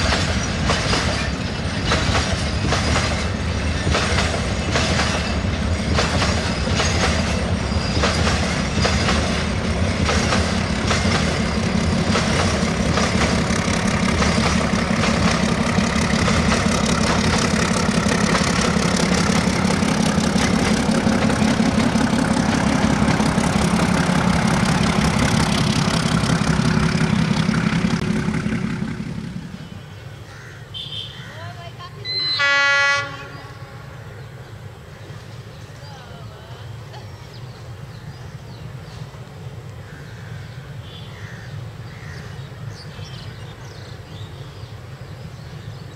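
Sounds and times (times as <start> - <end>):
train wheels clattering over rail joints: 0.0 - 29.5
train rumble: 0.0 - 30.6, 31.2 - 45.9.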